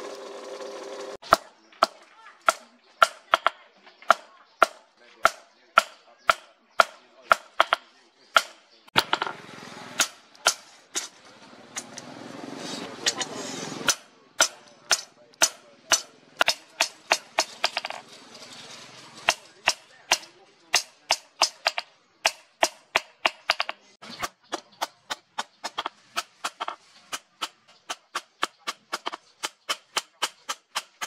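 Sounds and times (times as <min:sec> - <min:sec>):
hammer striking steel on anvil: 0:10.0 - 0:11.1, 0:13.0 - 0:18.0, 0:19.2 - 0:23.8.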